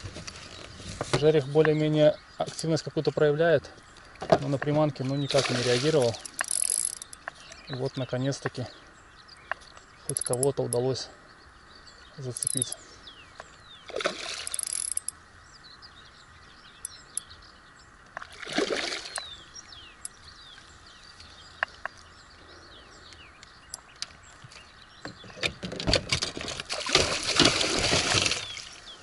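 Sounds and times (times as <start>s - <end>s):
small birds chirping: 0.0s - 26.0s, 26.8s - 29.0s
fish splashing at surface: 26.4s - 28.6s.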